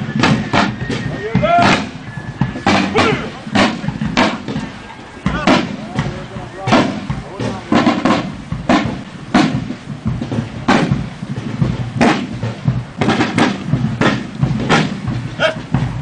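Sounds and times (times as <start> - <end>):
field drum beats: 0.0 - 16.0.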